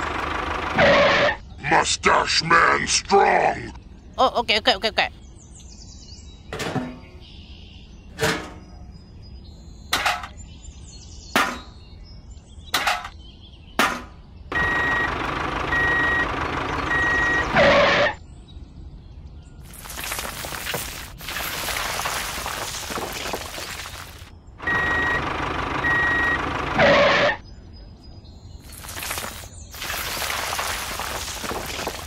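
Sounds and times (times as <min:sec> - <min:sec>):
reversing beeps: 0:14.5 - 0:18.2, 0:24.6 - 0:27.4
gravel sliding and rattling: 0:19.6 - 0:24.3, 0:28.5 - 0:32.0
sand pouring into tin drum: 0:28.7 - 0:32.0.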